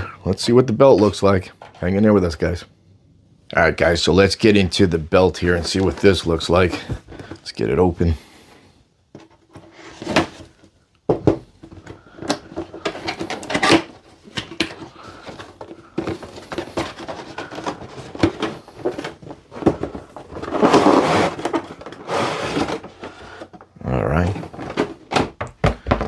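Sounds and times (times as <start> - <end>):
cardboard rubbing and sliding: 16.1 - 23.3.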